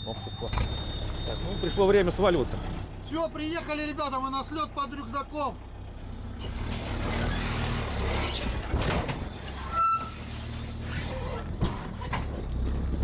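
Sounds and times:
short high beep: 0.0 - 2.1
diesel engine idling: 0.0 - 6.7.

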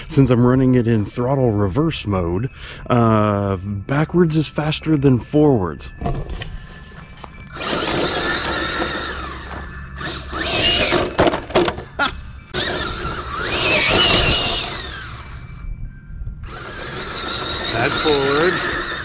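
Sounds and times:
electric motor whining: 6.3 - 19.0.

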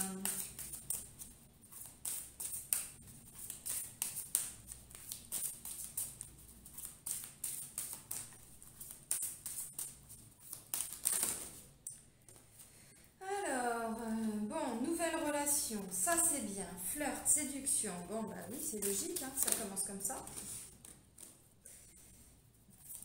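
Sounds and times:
cards being shuffled: 0.0 - 11.7, 18.5 - 21.5.

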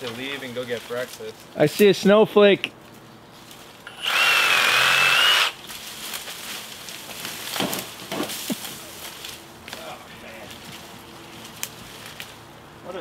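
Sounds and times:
brush rustling: 0.0 - 2.2, 2.8 - 13.0
cordless power tool whining: 3.9 - 5.6.

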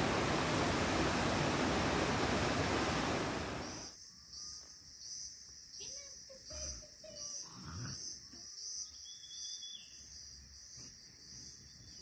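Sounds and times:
insects chirring: 3.5 - 12.0.

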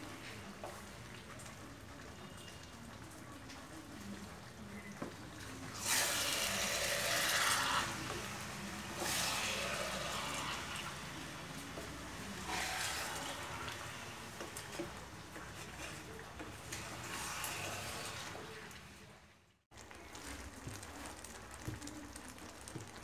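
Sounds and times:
pickle sizzling in a hot wok: 5.7 - 18.6.

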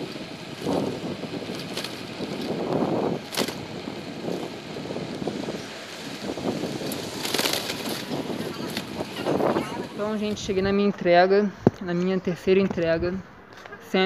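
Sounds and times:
bicycle knocks and rattles: 0.0 - 5.6, 6.2 - 9.0
wind on microphone: 0.0 - 11.8, 12.4 - 13.3
road noise: 0.0 - 14.0.

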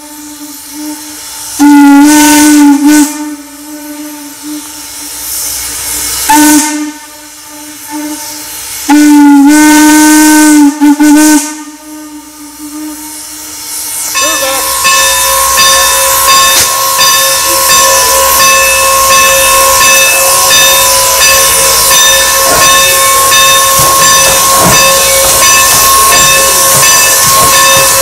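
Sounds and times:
steam hissing: 0.0 - 28.0
steam whistle blasts: 0.0 - 28.0
high-pitched steady tone: 14.0 - 28.0.

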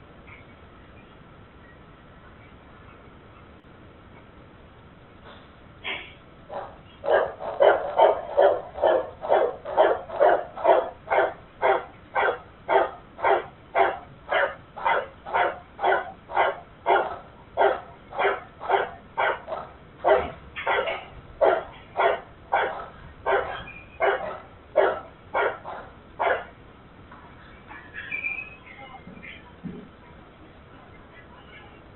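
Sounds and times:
dog barking: 6.5 - 26.5.

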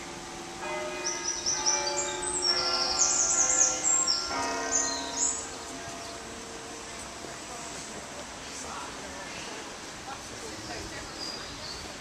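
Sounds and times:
church bells ringing: 0.0 - 7.8
birds chirping: 0.7 - 6.4.

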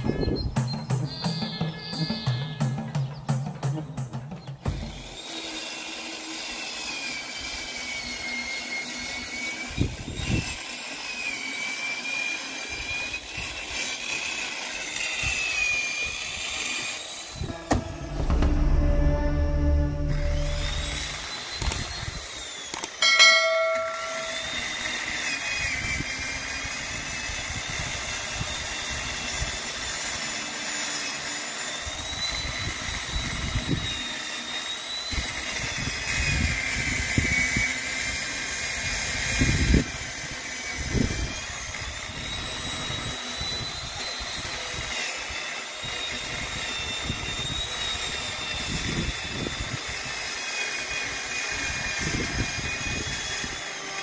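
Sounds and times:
chainsaw cutting branch: 4.7 - 7.7
short bright chime: 17.5 - 21.4, 23.0 - 24.8.

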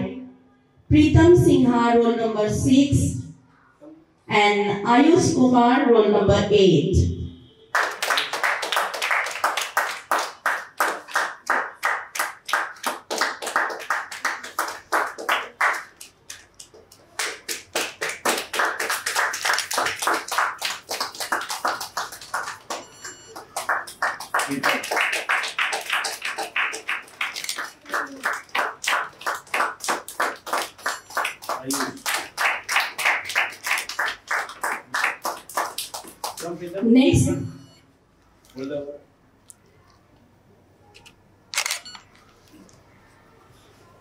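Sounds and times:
audience clapping in rhythm: 7.7 - 36.8.

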